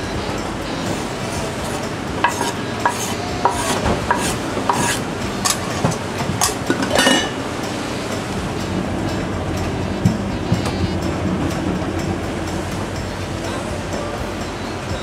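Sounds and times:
spatula scraping cutting board: 0.9s - 5.8s
spatula knocking pot rim: 1.6s - 7.4s.

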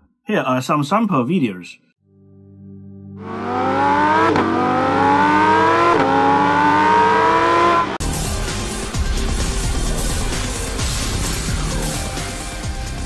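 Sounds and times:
car engine accelerating through gears: 3.2s - 12.0s.

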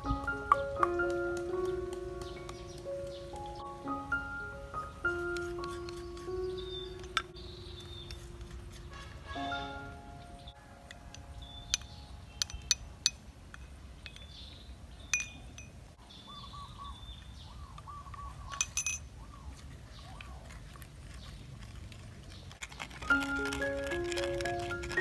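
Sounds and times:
birds chirping: 0.0s - 21.5s
spoon clinking against bowls: 10.9s - 13.2s, 15.1s - 15.8s, 18.6s - 19.1s.

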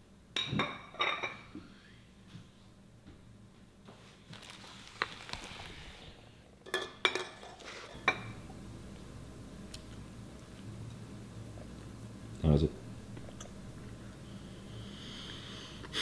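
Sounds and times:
soft rustling: 3.8s - 6.3s
plate and cutlery clinking: 6.6s - 8.4s.

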